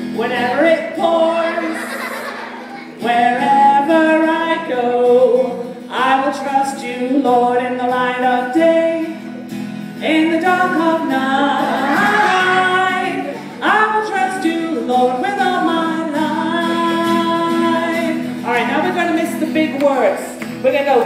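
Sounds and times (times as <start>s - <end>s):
strummed acoustic guitar: 0.0s - 21.0s
woman singing: 0.2s - 1.8s, 3.0s - 9.2s, 10.0s - 18.7s.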